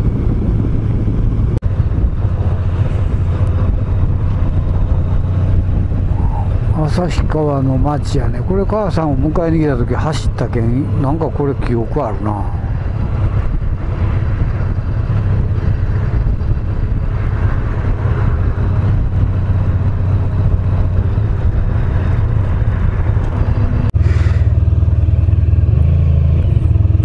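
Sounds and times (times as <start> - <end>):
motorcycle engine running: 0.0 - 7.1, 12.5 - 27.0.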